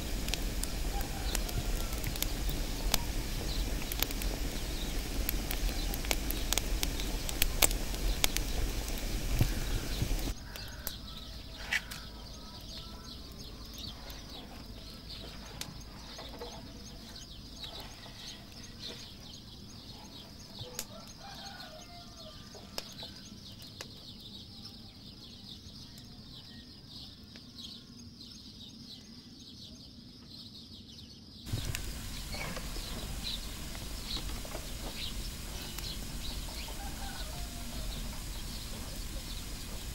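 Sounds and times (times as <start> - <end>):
fire crackling in oven: 0.0 - 28.4, 31.4 - 39.9
faint chicken clucks: 0.3 - 4.2, 9.4 - 27.5, 31.6 - 39.9.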